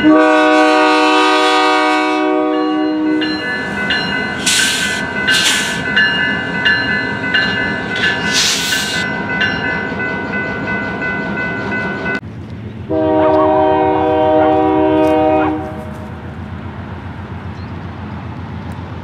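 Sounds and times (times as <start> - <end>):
locomotive air horn blast: 0.0 - 3.8, 12.9 - 16.1
train rolling: 0.0 - 19.0
short hissing bursts: 4.4 - 5.9, 8.2 - 9.0.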